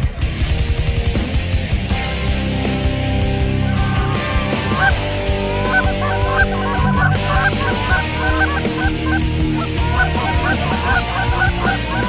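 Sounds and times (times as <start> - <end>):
steady low tones: 1.5 - 12.0
geese honking: 3.3 - 12.0.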